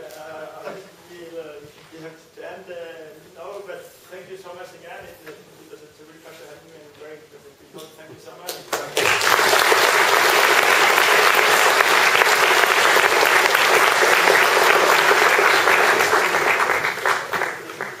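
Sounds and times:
audience applauding: 0:08.7 - 0:18.0.

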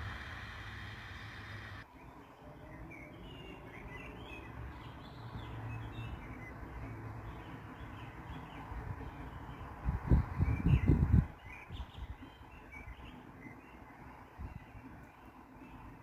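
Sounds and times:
low steady rumble: 0:00.0 - 0:01.8
small birds chirping: 0:00.0 - 0:16.0.

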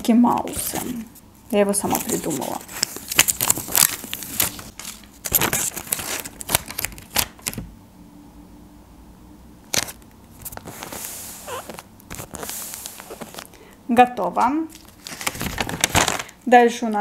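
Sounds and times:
paper rustling: 0:00.3 - 0:07.6, 0:09.7 - 0:13.5, 0:14.4 - 0:17.0
fingers rubbing paper: 0:10.5 - 0:13.4.

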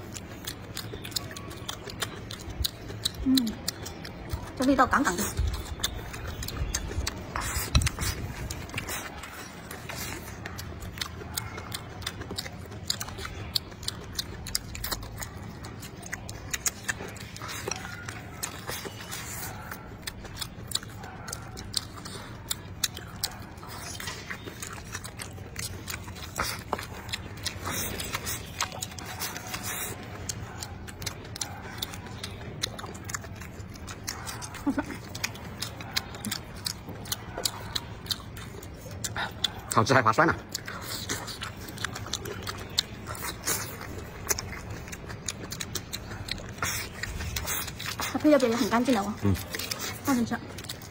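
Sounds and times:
close chewing of food: 0:00.0 - 0:50.9
mouth clicks and smacks: 0:00.0 - 0:50.9.

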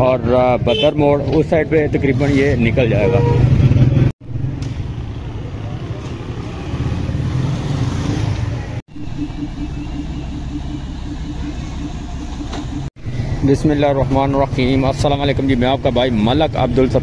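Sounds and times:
street traffic: 0:00.0 - 0:17.0
bus engine pulsing: 0:08.6 - 0:17.0.

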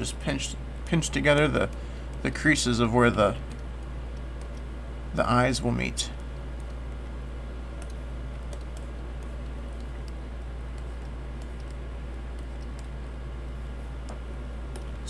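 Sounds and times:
steady low hum: 0:00.0 - 0:15.0
computer keyboard clicks: 0:03.4 - 0:04.7, 0:07.8 - 0:13.0.

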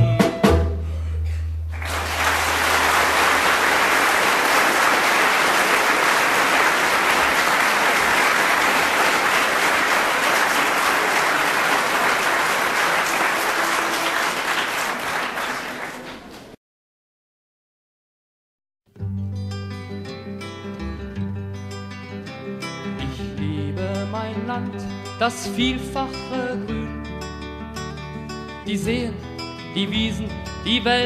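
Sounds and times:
audience applause: 0:01.7 - 0:16.6.

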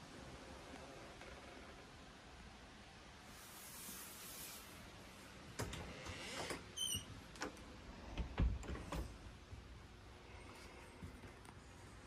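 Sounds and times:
door squeak: 0:06.4 - 0:07.2.

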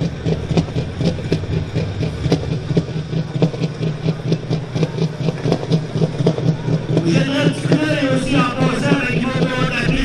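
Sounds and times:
diesel tractor engine idling: 0:00.0 - 0:10.0.

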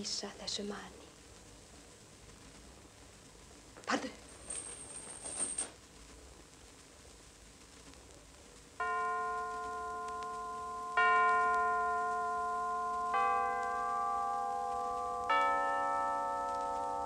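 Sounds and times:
bells struck slowly: 0:08.8 - 0:17.0.

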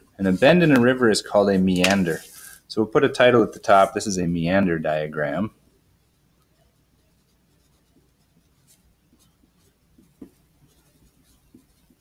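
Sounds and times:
pencil scratching on paper: 0:06.4 - 0:12.0.

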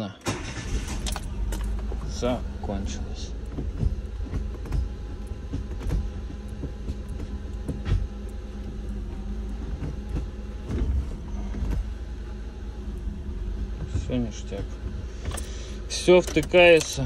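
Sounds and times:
car engine idling: 0:00.0 - 0:17.0
light clicks and knocks: 0:01.4 - 0:12.0.

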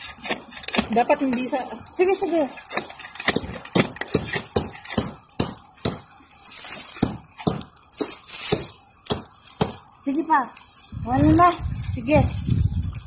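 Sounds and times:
hand tool striking soil: 0:00.0 - 0:01.7, 0:02.3 - 0:06.1, 0:06.8 - 0:09.9
gritty scraping: 0:00.0 - 0:13.0.

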